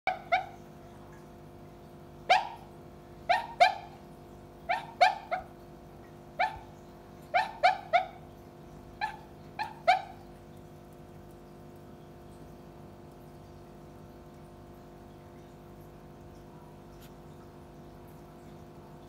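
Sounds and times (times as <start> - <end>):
dog yipping and whimpering: 0.1 - 0.6, 2.3 - 2.7, 3.3 - 4.0, 4.6 - 5.6, 6.4 - 8.3, 9.0 - 10.3.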